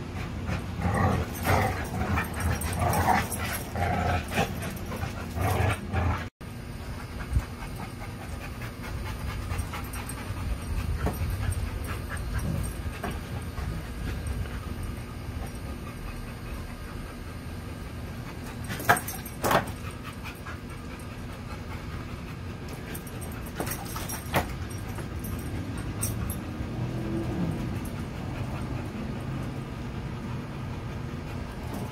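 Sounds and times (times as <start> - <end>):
steady low rumble: 0.0 - 18.7.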